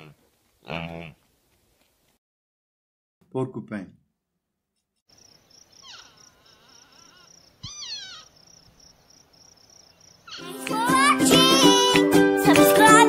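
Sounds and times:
porcupine squeaky calls: 5.6 - 9.1, 10.1 - 10.5.

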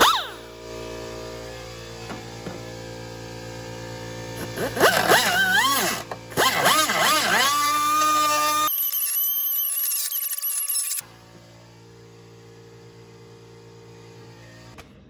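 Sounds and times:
die grinder whining: 0.0 - 11.8.

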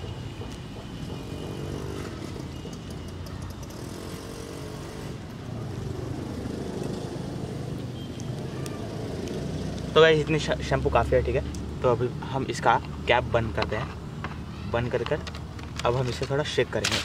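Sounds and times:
vehicle engine humming: 0.0 - 14.5.

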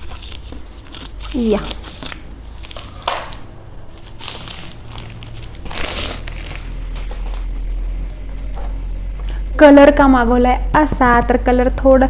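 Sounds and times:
plastic pouch crinkling: 0.0 - 7.6.

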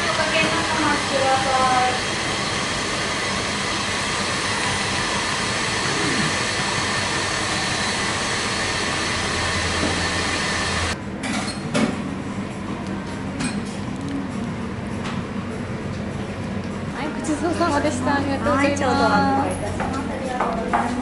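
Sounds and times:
kitchen machinery rushing: 0.0 - 11.0.

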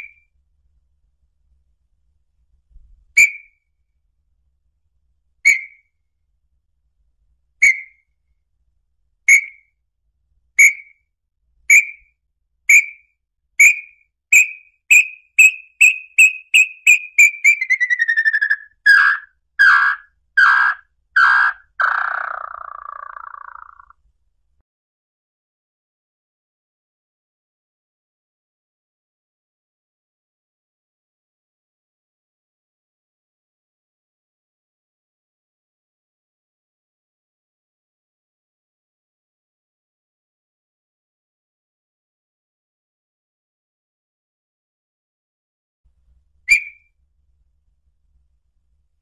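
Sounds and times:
bird whistled notes and trill: 3.2 - 3.6, 5.4 - 5.9, 7.6 - 8.1, 9.3 - 9.7, 10.6 - 11.0, 11.7 - 12.1, 12.7 - 23.9, 46.5 - 46.9.

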